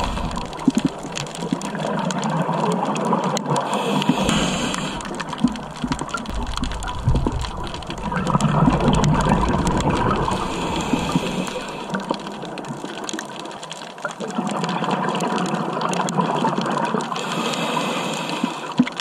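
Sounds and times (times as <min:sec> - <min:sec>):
underwater rushing hiss: 0:00.0 - 0:01.7, 0:03.6 - 0:05.6, 0:08.0 - 0:12.6, 0:17.2 - 0:18.9
deep rumbling surges: 0:06.3 - 0:12.0.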